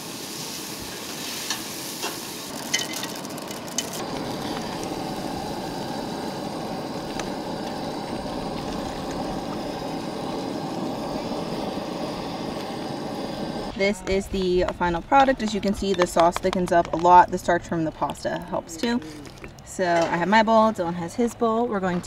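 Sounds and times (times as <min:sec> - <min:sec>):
vegetables sizzling in oil: 0:00.0 - 0:13.7
sauce bubbling: 0:02.4 - 0:13.7, 0:17.2 - 0:19.7.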